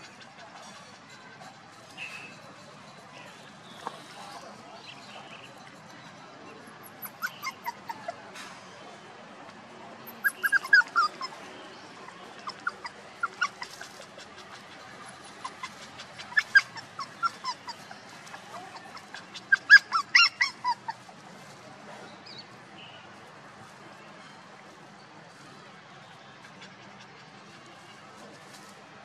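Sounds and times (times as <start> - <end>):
puppies yipping and whining: 6.8 - 8.2, 10.1 - 21.2.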